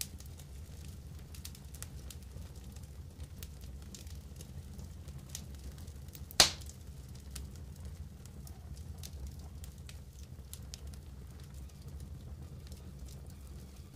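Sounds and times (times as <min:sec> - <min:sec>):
wood fire crackling and popping: 0:00.0 - 0:13.9
loud sharp snap: 0:06.4 - 0:06.7.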